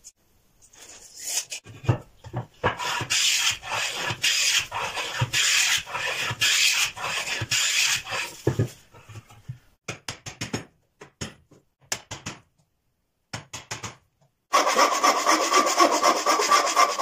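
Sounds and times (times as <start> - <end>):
hand plane scraping wood: 2.7 - 8.5, 14.5 - 17.0.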